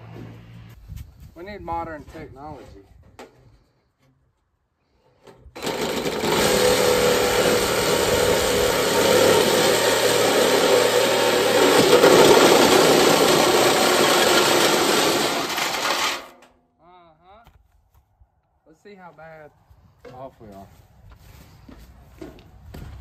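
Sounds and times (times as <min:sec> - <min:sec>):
reciprocating saw cutting sheet metal: 0:05.6 - 0:16.5.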